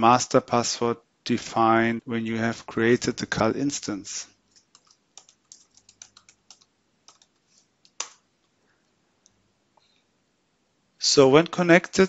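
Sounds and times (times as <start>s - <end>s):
keyboard key clicks: 4.6s - 8.2s.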